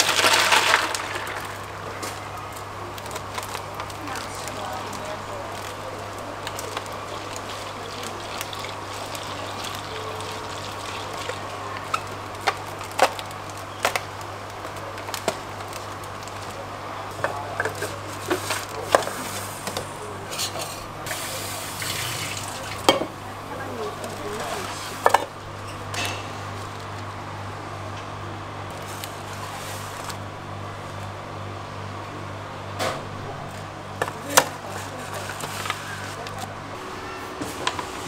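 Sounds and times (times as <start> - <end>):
plastic bag rustling: 0.0 - 16.7, 17.3 - 22.9, 23.5 - 25.2, 28.7 - 30.2
liquid pouring: 5.9 - 12.0, 21.0 - 22.9.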